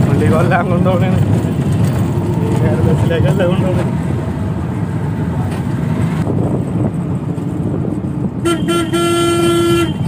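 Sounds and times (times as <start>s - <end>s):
auto-rickshaw engine rumbling: 0.0s - 10.0s
horn toots: 8.4s - 10.0s.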